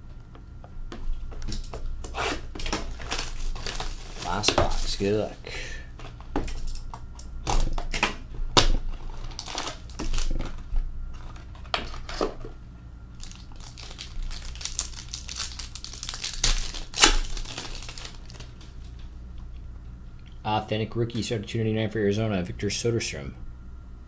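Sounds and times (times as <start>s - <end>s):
cardboard rustling: 2.4s - 5.3s
crinkling wrapper: 2.6s - 5.3s, 8.8s - 12.2s, 13.2s - 19.0s.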